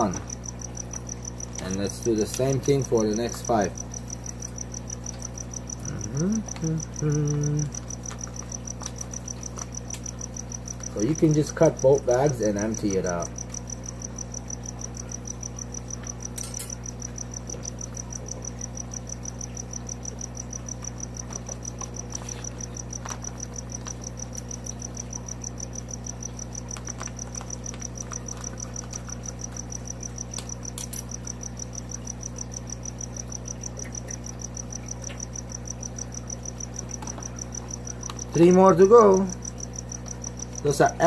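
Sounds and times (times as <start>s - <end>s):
cricket chirping: 0.0s - 41.0s
steady low hum: 0.0s - 41.0s.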